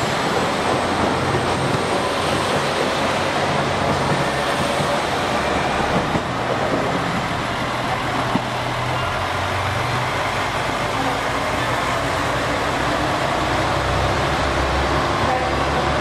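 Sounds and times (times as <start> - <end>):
diesel engines droning: 0.0 - 16.0.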